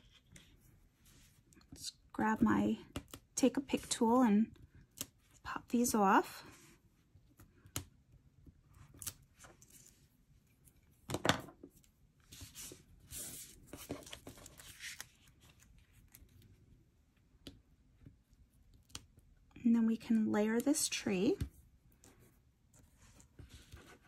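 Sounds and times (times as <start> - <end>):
paper rustles: 12.3 - 16.4.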